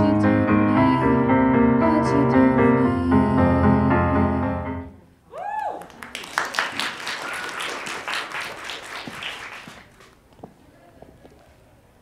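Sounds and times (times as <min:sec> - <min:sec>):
person whooping: 0:05.3 - 0:06.0
audience applauding: 0:05.6 - 0:10.2.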